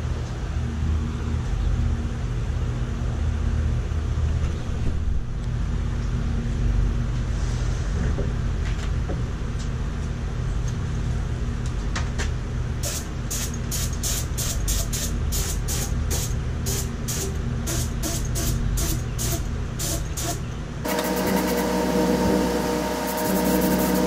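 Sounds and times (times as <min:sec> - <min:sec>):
air compressor humming: 0:12.8 - 0:24.0.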